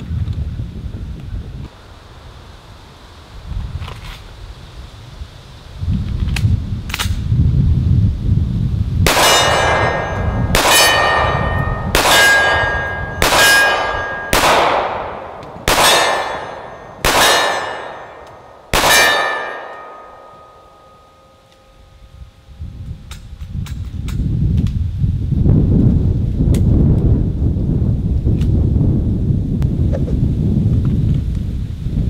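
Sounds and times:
pistol shots: 9.1s - 20.6s
steel target clanging: 9.1s - 21.7s.

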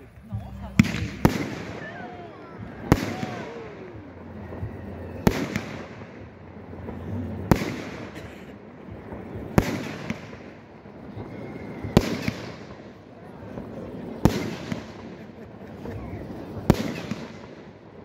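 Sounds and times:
firework shells bursting: 0.0s - 12.9s
firework crackle: 0.0s - 18.0s.

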